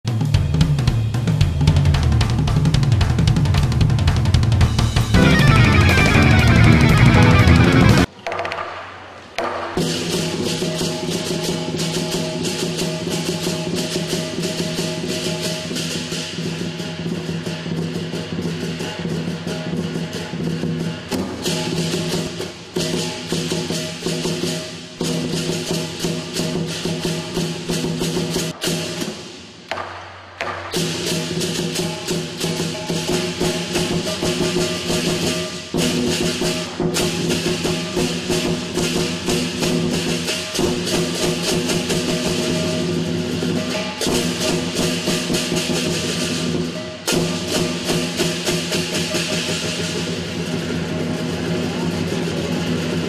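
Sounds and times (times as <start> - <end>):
large drum beating: 0.1 - 8.1
cymbals crashing: 0.2 - 8.1, 8.9 - 53.0
gong ringing: 5.2 - 8.1.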